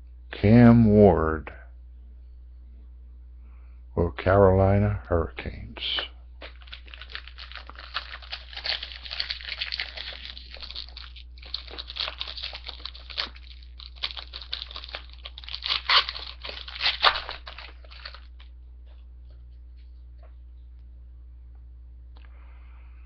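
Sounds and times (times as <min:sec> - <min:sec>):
foil wrapper crinkling: 0:06.4 - 0:18.6.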